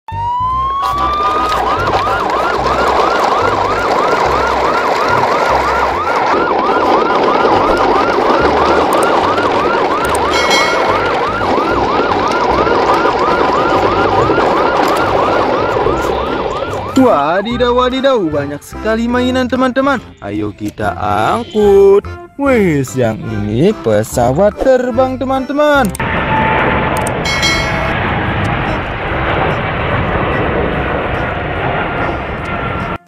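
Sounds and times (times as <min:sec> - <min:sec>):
electronic siren wailing and yelping: 0:00.1 - 0:18.2.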